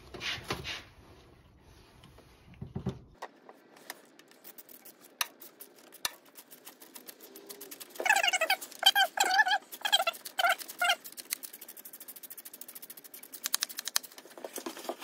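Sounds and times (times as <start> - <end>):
small metal clicks and ticks: 9.7 - 14.2.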